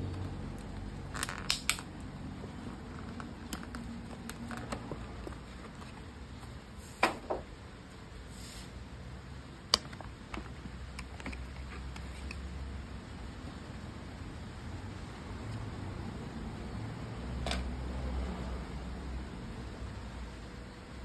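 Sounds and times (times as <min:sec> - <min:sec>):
low steady hum: 0:00.0 - 0:21.0
plastic packaging clicks and snaps: 0:00.6 - 0:02.0.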